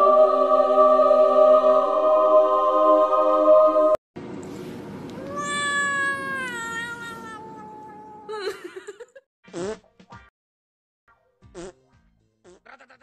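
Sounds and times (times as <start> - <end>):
cat meowing: 5.2 - 8.3.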